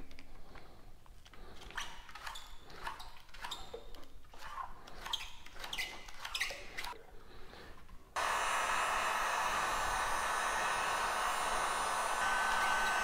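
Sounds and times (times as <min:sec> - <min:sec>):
heat gun blowing: 0:08.2 - 0:13.0.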